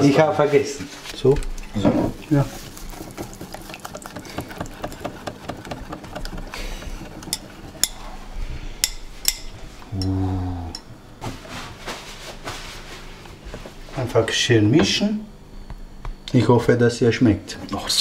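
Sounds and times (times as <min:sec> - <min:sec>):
utensils tapping dishes: 0:03.0 - 0:08.0
man humming: 0:09.8 - 0:10.9.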